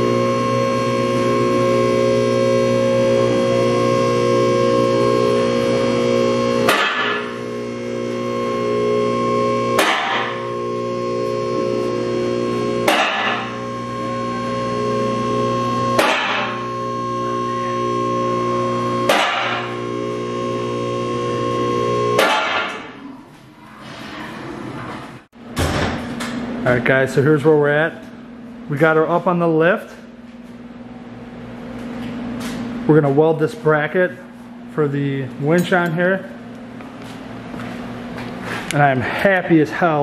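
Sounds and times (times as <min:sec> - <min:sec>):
guitar chords ringing: 0:00.0 - 0:22.8.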